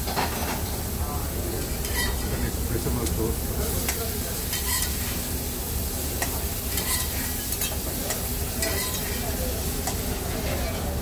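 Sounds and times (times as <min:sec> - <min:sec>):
chicken sizzling in a pan: 0:00.0 - 0:11.0
metal utensils scraping pan: 0:01.8 - 0:02.3, 0:03.9 - 0:05.2, 0:06.2 - 0:10.9.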